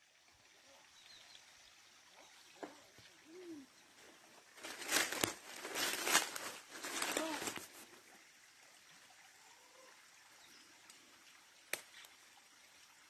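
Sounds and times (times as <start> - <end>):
brush rustling: 4.0 - 7.9
footsteps on dry leaves: 4.4 - 7.8.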